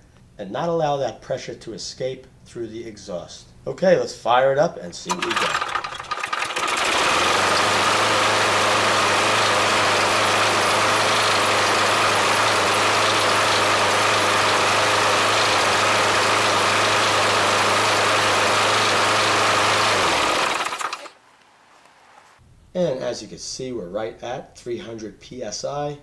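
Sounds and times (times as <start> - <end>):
lawn mower engine running: 5.1 - 21.2.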